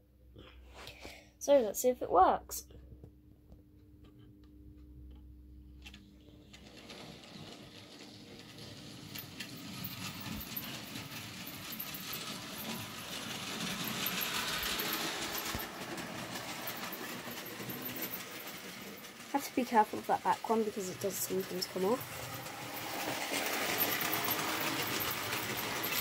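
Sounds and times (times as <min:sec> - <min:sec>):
wheels rattling along rails: 0:06.4 - 0:26.0.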